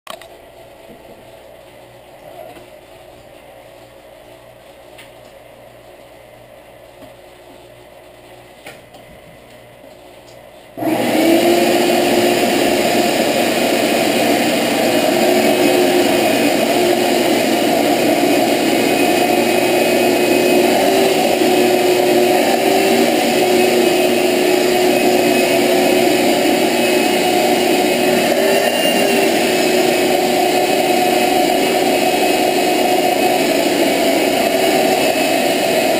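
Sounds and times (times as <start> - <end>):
shop vacuum motor whine: 10.8 - 35.9.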